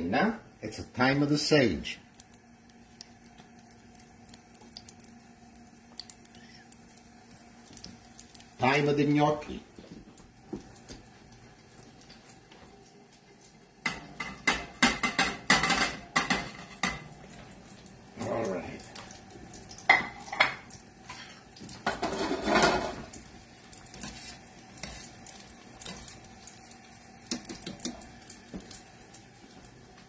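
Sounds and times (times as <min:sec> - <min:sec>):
plate and utensils clattering on pot: 0:13.8 - 0:17.1, 0:21.8 - 0:23.1
knocks and scraping in pot: 0:21.8 - 0:23.1.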